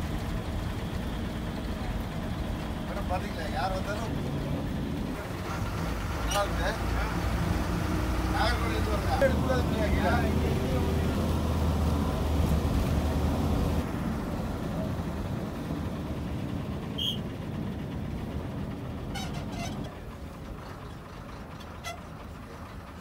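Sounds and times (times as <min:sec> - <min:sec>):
bus engine rumble: 0:00.0 - 0:23.0
road noise: 0:00.0 - 0:23.0.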